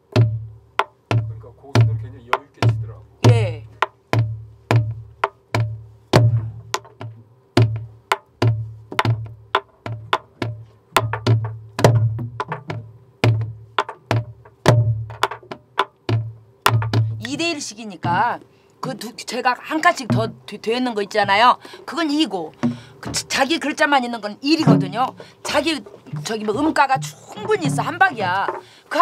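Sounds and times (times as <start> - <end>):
deep drum thumps: 0.0 - 29.0
stick cracking on wooden drum shell: 0.1 - 17.4, 24.6 - 28.8
person calling out: 24.6 - 28.6.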